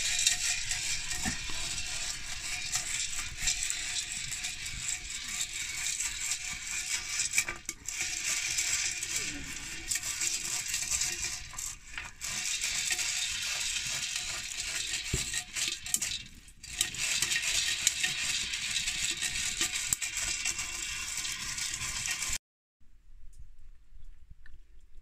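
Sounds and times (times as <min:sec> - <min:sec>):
corn popping in a pan: 0:00.0 - 0:22.4.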